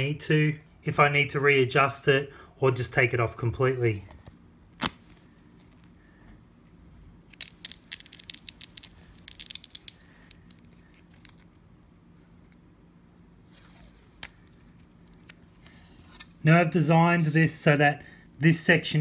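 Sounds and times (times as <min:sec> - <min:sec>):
adhesive strip peeling crackle: 0:04.6 - 0:05.9, 0:07.3 - 0:12.6, 0:13.5 - 0:15.5.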